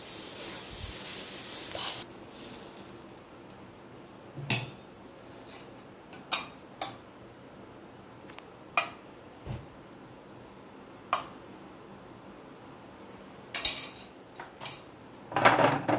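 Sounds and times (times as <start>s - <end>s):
batter hissing on hot griddle: 0.0s - 3.8s, 10.4s - 15.3s.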